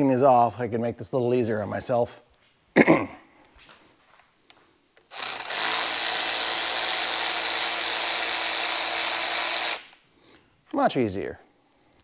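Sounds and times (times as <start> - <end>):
cordless drill whining: 5.1 - 10.0.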